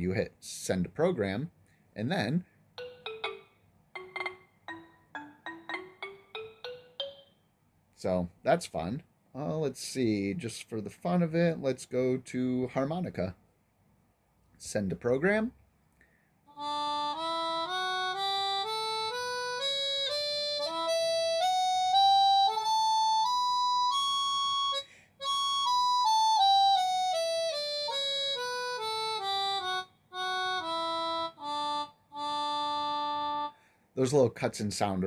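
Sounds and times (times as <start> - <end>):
synthesized harmonica scale: 2.8 - 7.1, 16.5 - 33.7.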